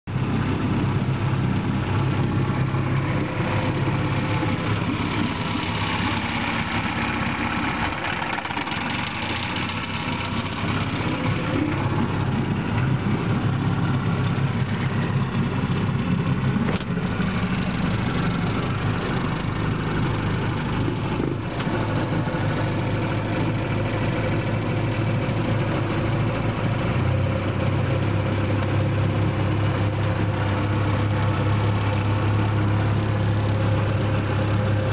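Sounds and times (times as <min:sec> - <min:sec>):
outboard motor running: 0:00.1 - 0:34.9.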